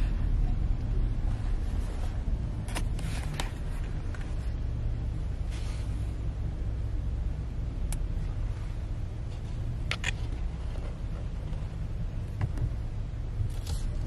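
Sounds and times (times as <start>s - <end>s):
car engine rumble: 0.0s - 14.0s
road noise inside car: 0.0s - 14.0s.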